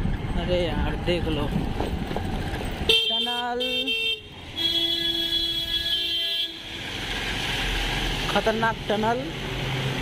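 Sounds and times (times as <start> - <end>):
scooter horn honking: 2.9 - 6.6.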